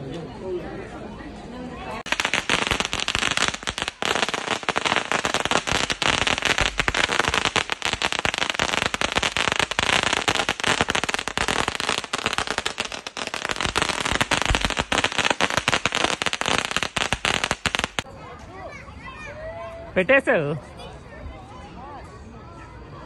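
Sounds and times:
firecrackers banging: 2.0 - 18.1.

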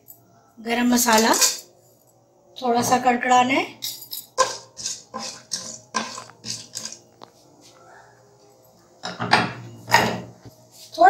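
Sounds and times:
spatula scraping pot: 4.4 - 7.0.

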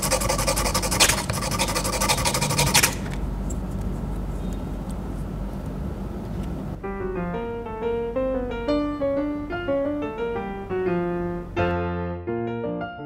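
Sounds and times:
metal rasping on abrasive paper: 0.0 - 3.2
low steady hum: 0.0 - 11.7.

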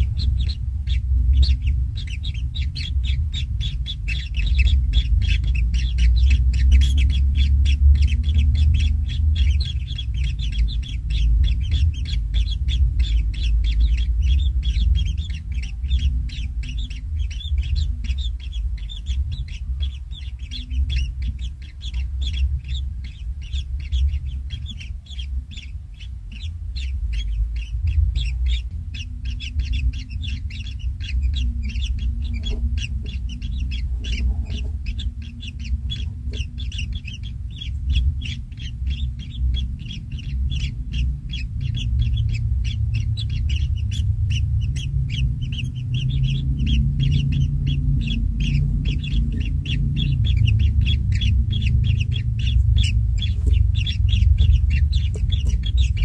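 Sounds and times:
nestlings chirping: 0.0 - 56.0
steady low rumble: 0.0 - 56.0.

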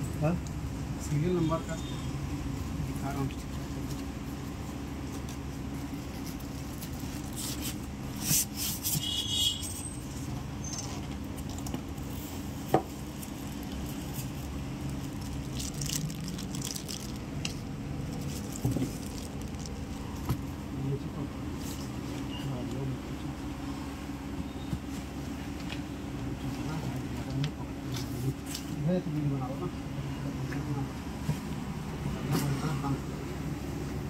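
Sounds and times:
packaging rustling and scraping: 3.7 - 20.4.

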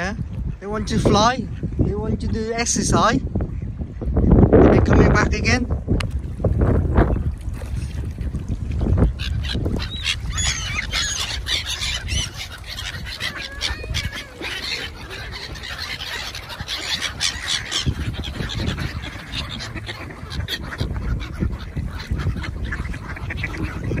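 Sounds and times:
ducks quacking: 9.0 - 24.0
geese honking: 9.2 - 24.0
gulls squealing cries: 9.2 - 24.0.

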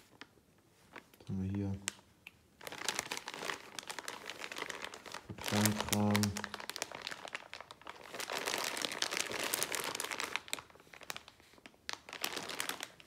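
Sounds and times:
plastic bags crinkling: 2.6 - 13.0.

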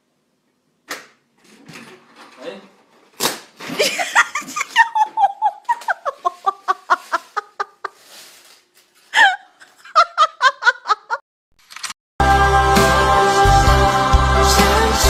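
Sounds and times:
high-pitched laughter: 3.8 - 8.0, 9.2 - 11.2.

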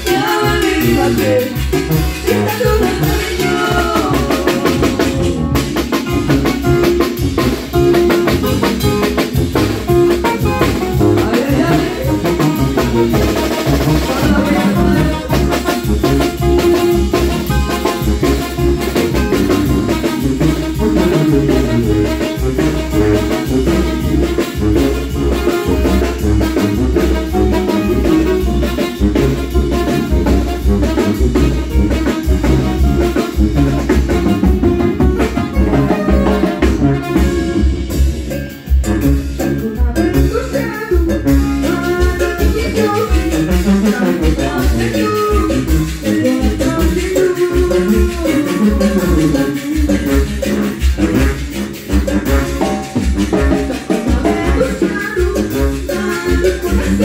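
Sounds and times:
person singing: 0.0 - 6.2, 10.9 - 13.2, 13.8 - 16.5, 39.6 - 50.8, 53.4 - 57.0
brass band playing: 0.0 - 57.0
drum kit beat: 0.0 - 57.0.

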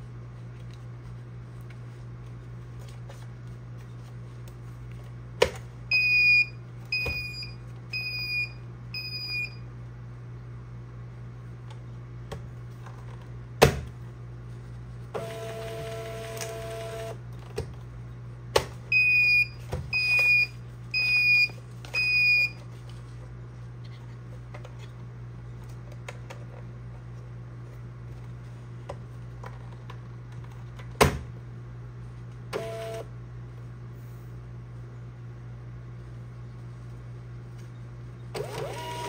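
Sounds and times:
feed motor whirring: 38.4 - 39.0.

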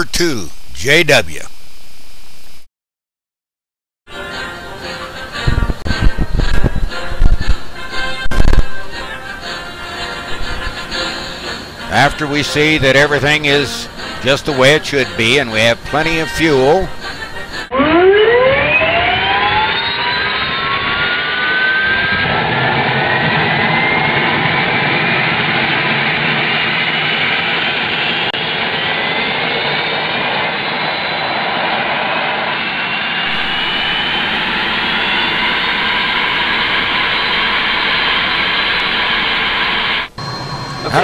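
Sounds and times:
jet engine spooling up: 16.3 - 41.0.

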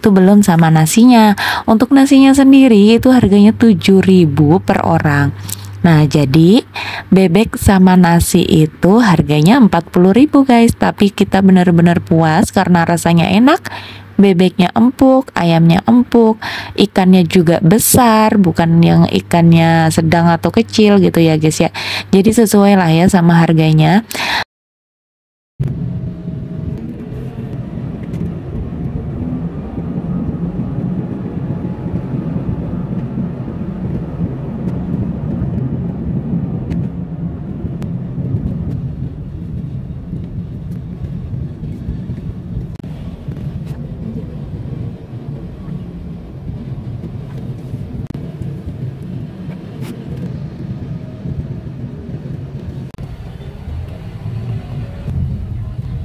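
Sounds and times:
car engine and tyres rumbling: 25.6 - 56.0.

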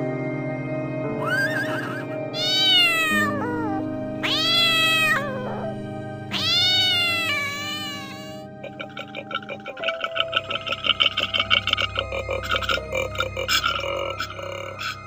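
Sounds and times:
background music: 0.0 - 15.0
cat meowing: 1.2 - 8.9.

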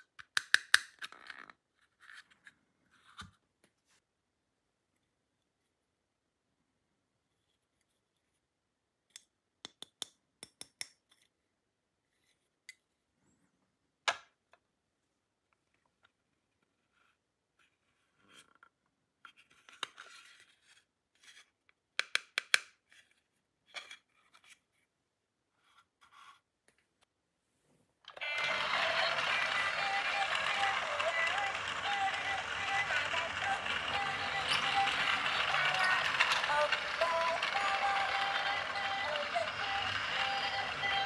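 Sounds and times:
plastic snap: 0.0 - 1.0
plastic toy pieces clicking: 0.0 - 1.5, 28.2 - 41.0.

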